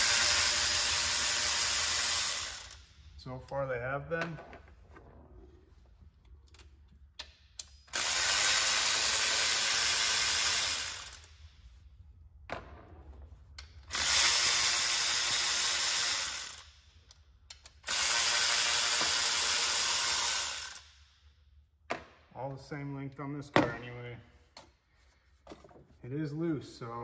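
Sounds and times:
electric ratchet spinning bolts: 0.0 - 2.9, 7.9 - 11.3, 13.9 - 16.8, 17.8 - 21.0.

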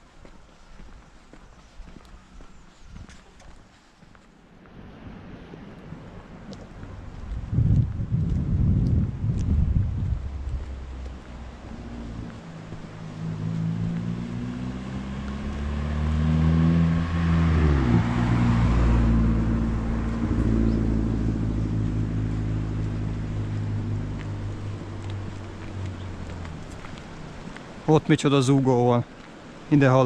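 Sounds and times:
vehicle engine passing by: 4.8 - 27.8.

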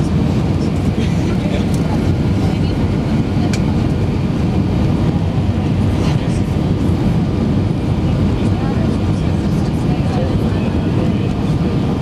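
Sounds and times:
airliner engine and airflow rumble: 0.0 - 12.0.

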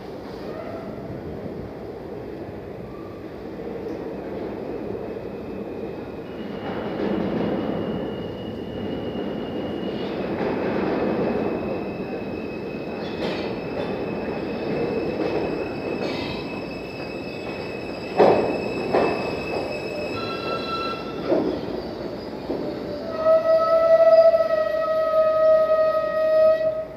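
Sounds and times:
subway train rumbling: 0.0 - 26.9
wheel squeal: 11.4 - 23.5.

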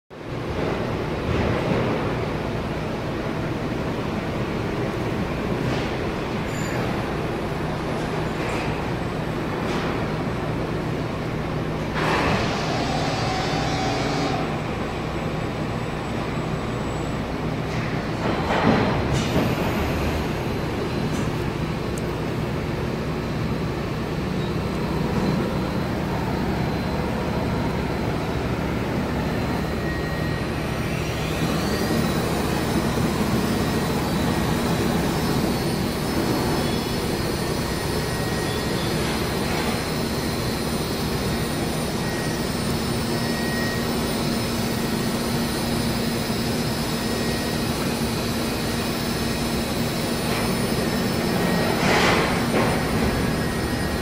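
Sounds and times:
cnc router running: 10.6 - 54.0
spindle whine rising: 19.4 - 54.0.

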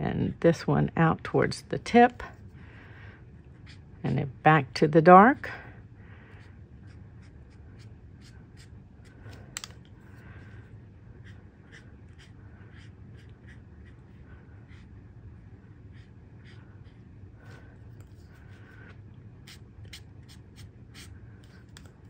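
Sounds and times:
marker stroking on card: 6.3 - 9.7, 11.2 - 15.0, 15.8 - 21.9.

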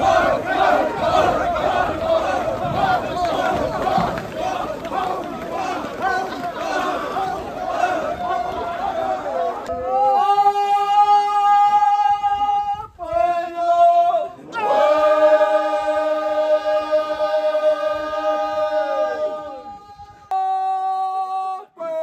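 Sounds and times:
choir singing held notes: 0.0 - 10.6, 13.0 - 19.8.

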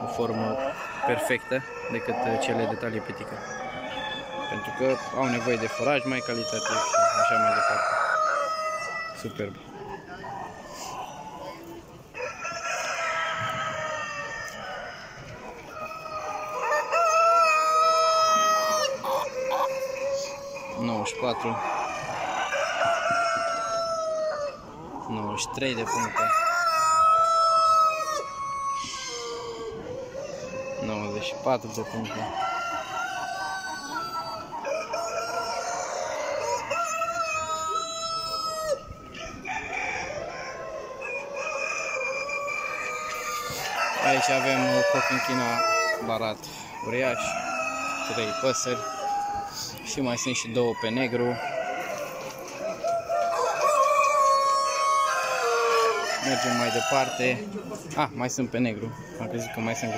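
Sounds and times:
roosters crowing: 0.0 - 59.9.

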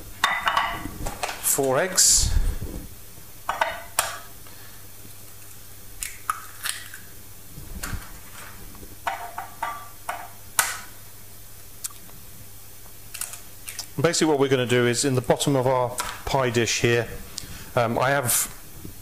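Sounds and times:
eggshells cracking: 5.4 - 7.1.

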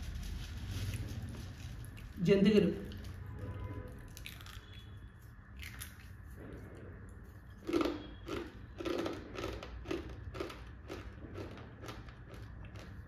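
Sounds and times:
person chewing crunchy snack: 4.1 - 6.4, 7.3 - 13.0.

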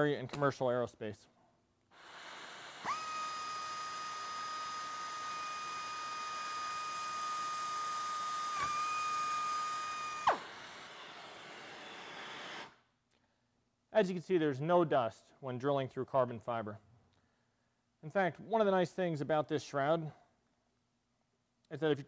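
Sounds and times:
air drill whine: 1.9 - 12.8
drill click: 2.0 - 12.8.

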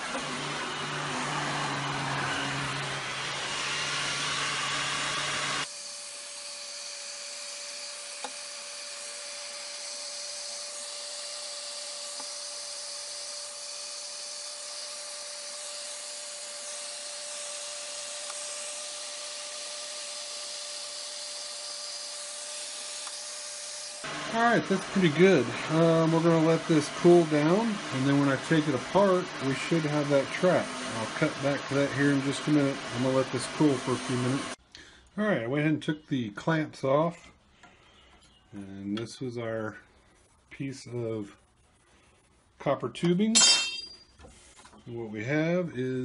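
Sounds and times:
heat gun blowing air: 0.0 - 34.6.

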